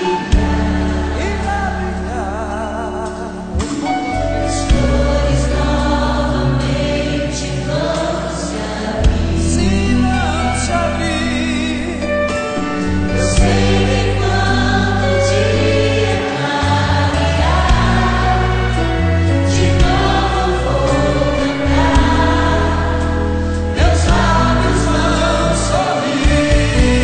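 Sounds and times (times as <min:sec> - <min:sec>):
band with sustained bass: 0:00.0 - 0:27.0
gospel singing with choir: 0:00.0 - 0:27.0
drum hits: 0:21.6 - 0:22.5.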